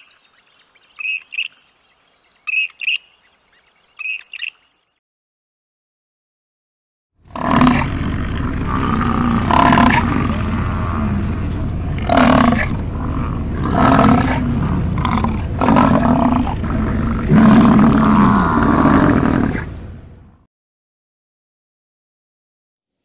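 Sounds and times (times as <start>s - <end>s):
bison bellowing: 7.3s - 20.4s.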